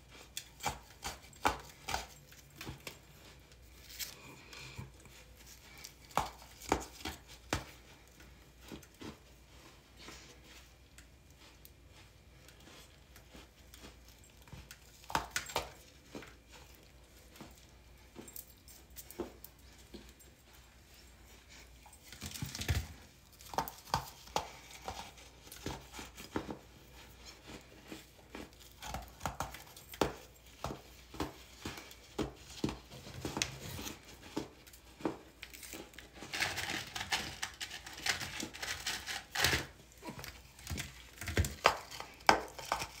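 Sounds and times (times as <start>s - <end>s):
hard chunks crunching when bitten: 35.4s - 43.0s.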